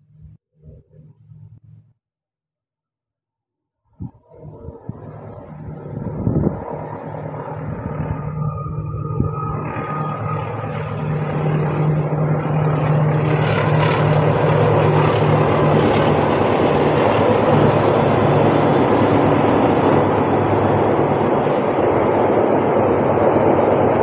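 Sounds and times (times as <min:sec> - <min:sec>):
diesel locomotive engine drone: 0:04.0 - 0:24.0
train carriages rolling over bridge: 0:09.6 - 0:24.0.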